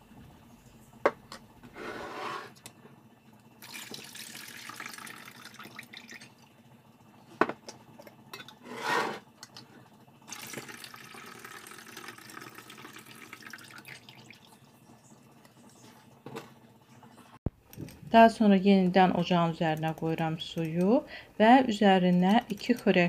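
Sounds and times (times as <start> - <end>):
water splashing into a pot: 3.6 - 6.4, 10.3 - 14.5.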